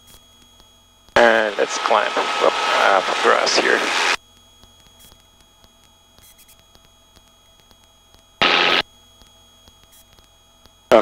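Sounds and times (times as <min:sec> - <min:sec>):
helicopter drone through headset: 0:01.2 - 0:04.2
short burst of noise: 0:08.4 - 0:08.8.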